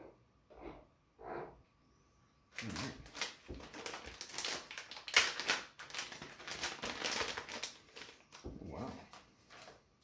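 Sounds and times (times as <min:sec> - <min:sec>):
plastic bag crinkling: 0:02.5 - 0:09.9.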